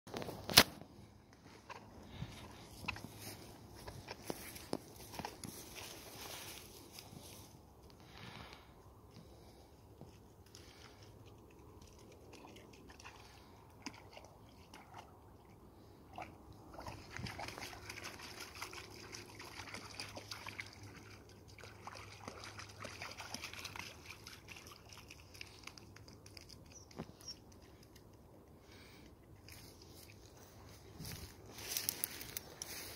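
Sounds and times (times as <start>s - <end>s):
dog splashing in shallow water: 16.1s - 27.4s.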